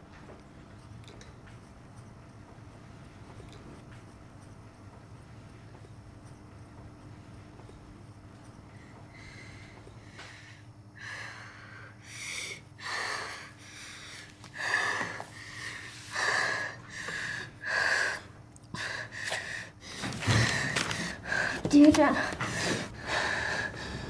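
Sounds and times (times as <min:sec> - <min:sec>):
faint room hum: 0:00.0 - 0:24.0
girl breathing heavily: 0:08.7 - 0:24.0.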